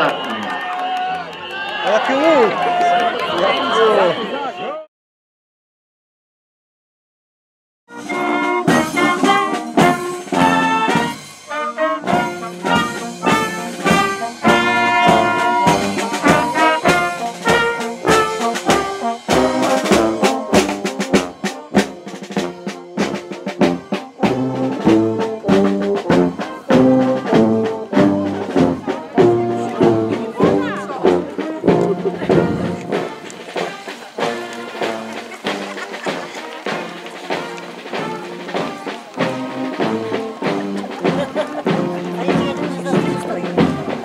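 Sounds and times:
marching brass band playing: 7.9 - 44.0
snare drum: 7.9 - 44.0.

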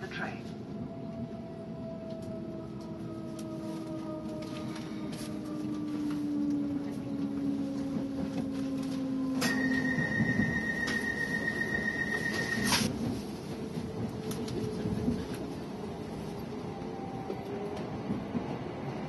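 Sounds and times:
train motor whine and rumble: 0.5 - 19.0
steady high tone: 9.4 - 12.8.

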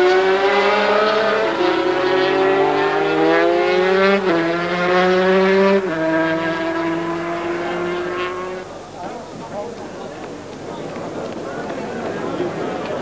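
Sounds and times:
racing motorcycles at full throttle: 0.0 - 8.8.

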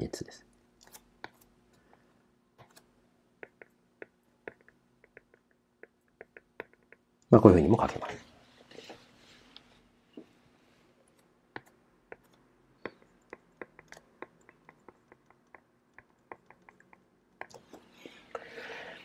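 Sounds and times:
stylus tapping on tablet: 3.4 - 7.1, 11.5 - 17.6.

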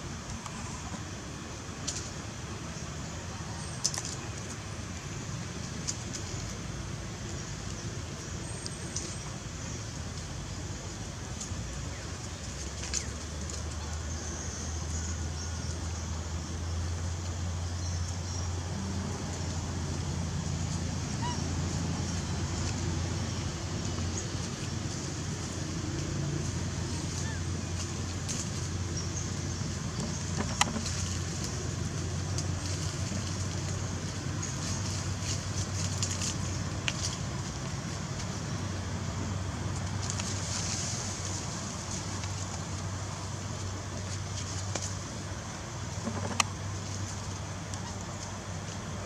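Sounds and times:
outdoor rumble and hiss: 0.0 - 49.0.

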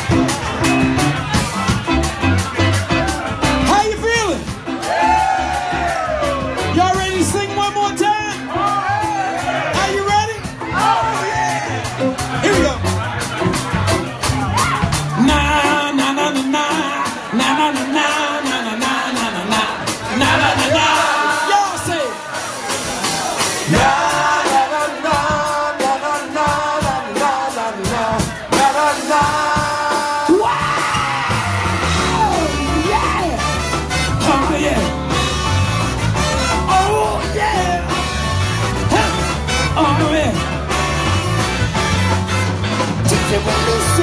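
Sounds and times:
deep bass: 0.0 - 18.1, 27.9 - 44.0
drums: 0.0 - 44.0
man singing and shouting: 6.3 - 22.4, 23.1 - 35.3, 36.4 - 40.7, 43.0 - 44.0
saxophone: 29.6 - 37.2, 37.8 - 44.0.

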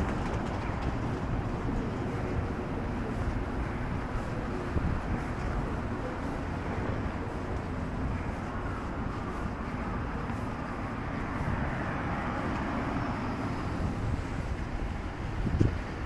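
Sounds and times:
cars passing on street: 0.0 - 16.0
wind bumps on microphone: 13.5 - 16.0.

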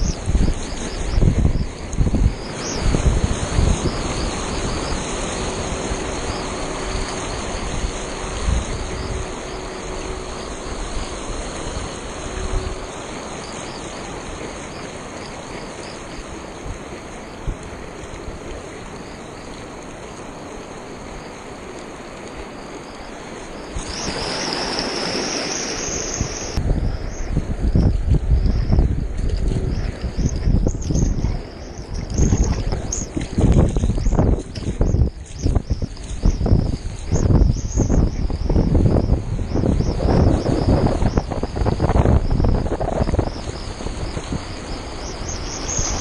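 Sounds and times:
paddle splashing water: 0.0 - 26.6, 29.1 - 37.2
water rushing around paddleboard: 0.0 - 46.0
wind gusting on microphone: 0.0 - 46.0.

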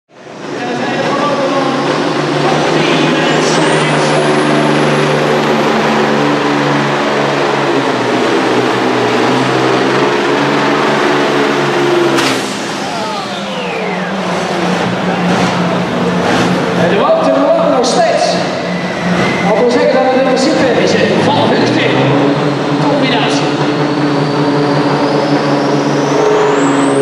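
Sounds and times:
truck engine running under load: 0.1 - 27.0
high whistle: 12.2 - 14.7.

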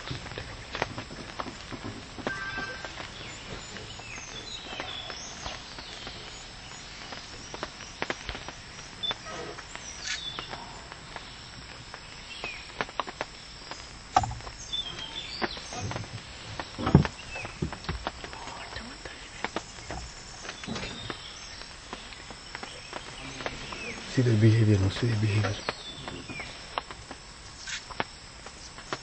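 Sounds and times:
high chirping calls: 2.2 - 12.8, 14.2 - 26.6.

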